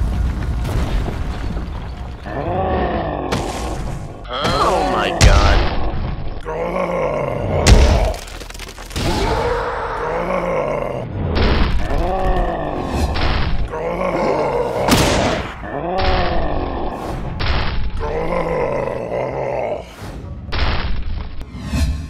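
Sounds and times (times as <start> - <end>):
deep strained grunts and groans: 2.2 - 3.5, 4.2 - 8.2, 9.2 - 14.9, 17.9 - 20.0.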